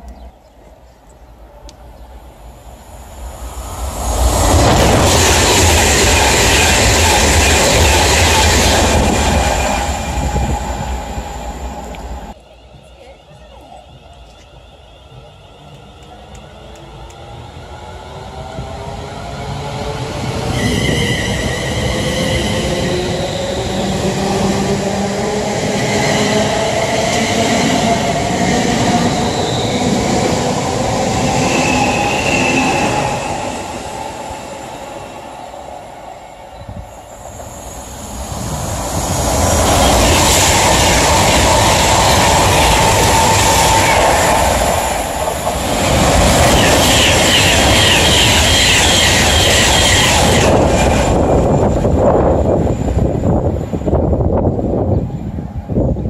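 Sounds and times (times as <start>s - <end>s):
train passing at speed: 0.0s - 56.0s
electric train whine: 1.4s - 56.0s
train wheel squeals: 9.6s - 24.2s, 25.9s - 35.6s, 46.0s - 50.8s.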